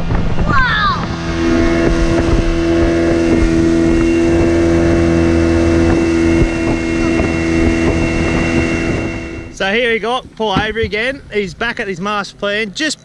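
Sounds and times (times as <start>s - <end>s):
outboard motor running: 0.0s - 13.0s.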